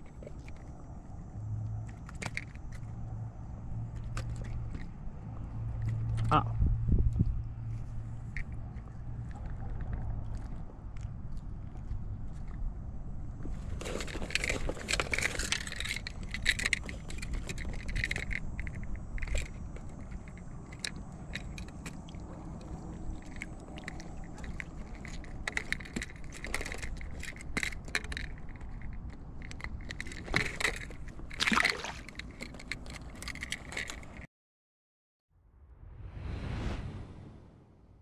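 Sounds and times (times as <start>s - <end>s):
wind rumbling on microphone: 2.6s - 30.2s
clicks scrapes and rustles: 13.4s - 34.3s.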